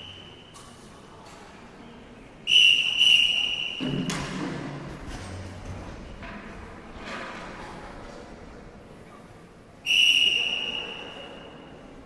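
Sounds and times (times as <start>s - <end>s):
whistle blown: 0.0s - 0.4s, 2.5s - 3.9s, 9.8s - 11.6s.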